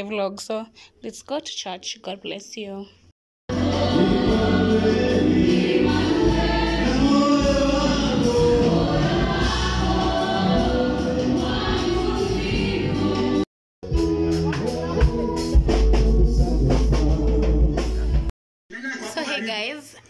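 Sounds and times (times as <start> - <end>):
choir singing gospel: 3.5 - 13.5
band with deep bass: 3.5 - 18.3.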